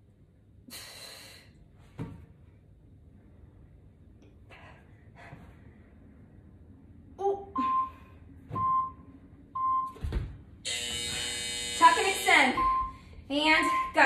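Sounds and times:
interval timer beeps: 0:07.6 - 0:08.0, 0:12.1 - 0:13.0, 0:13.6 - 0:14.0.

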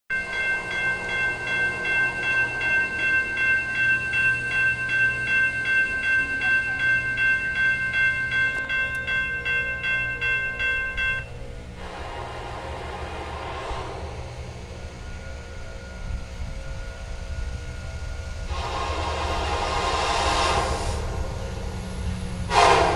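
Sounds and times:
railroad crossing bell ringing: 0:00.1 - 0:11.8, 0:14.4 - 0:19.6
low rumble of train: 0:00.1 - 0:22.9.

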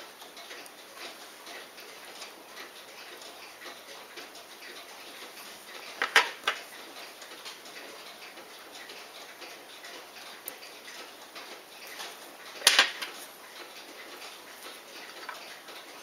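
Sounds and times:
clock-like ticking: 0:00.0 - 0:16.0.

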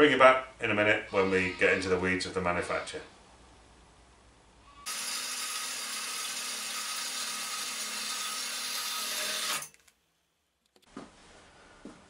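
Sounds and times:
band saw cutting steel: 0:04.8 - 0:09.8.

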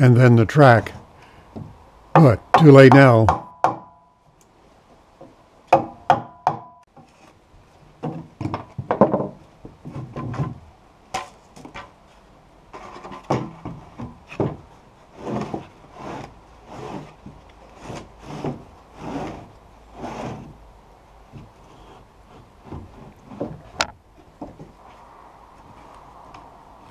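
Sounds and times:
hammer striking chisel: 0:02.2 - 0:04.0, 0:05.7 - 0:06.8
board scraping against floorboards: 0:12.7 - 0:20.6, 0:21.3 - 0:25.0.

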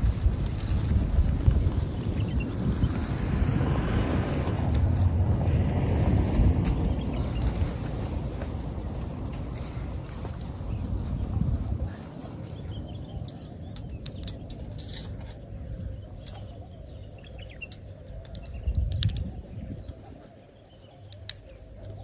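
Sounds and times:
low rumble: 0:00.0 - 0:12.9.

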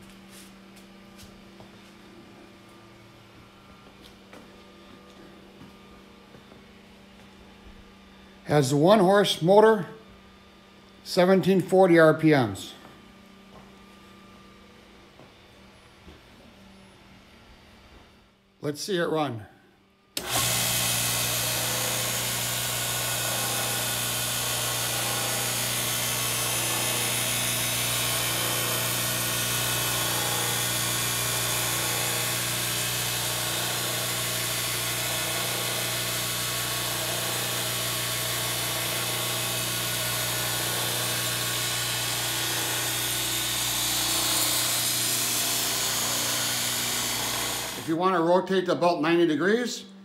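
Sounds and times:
belt grinder motor hum: 0:20.2 - 0:48.0.

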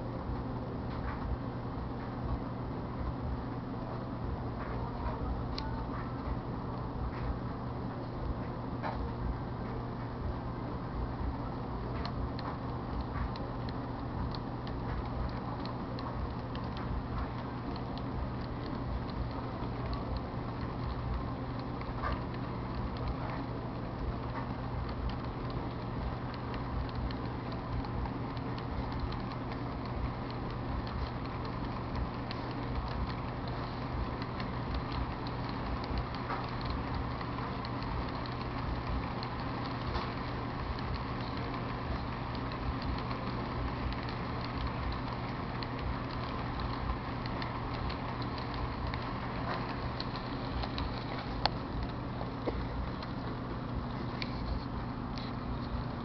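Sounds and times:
constant low hum: 0:00.0 - 0:56.0
light irregular clicks: 0:11.4 - 0:56.0
model train cars rolling on track: 0:14.3 - 0:52.4.

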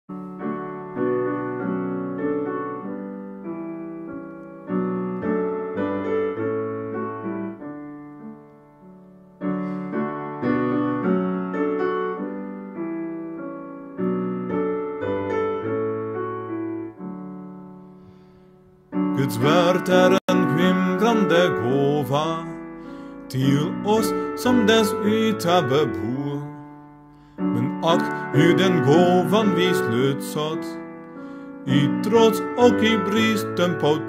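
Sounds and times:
piano playing hymn chords: 0:00.1 - 0:34.0.

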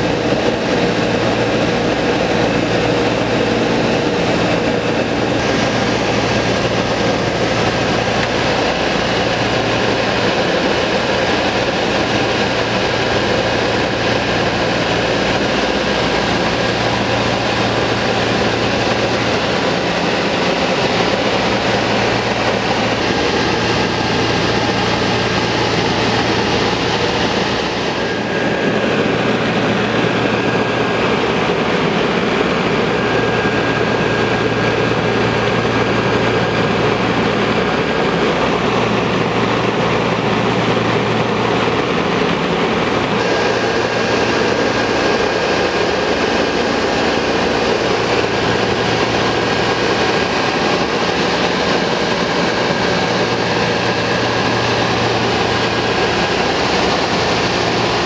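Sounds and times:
propeller plane engines droning: 0:00.0 - 0:58.0.

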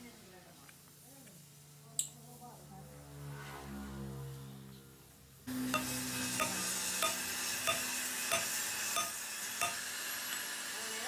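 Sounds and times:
hammer striking steel pin: 0:05.7 - 0:10.5.

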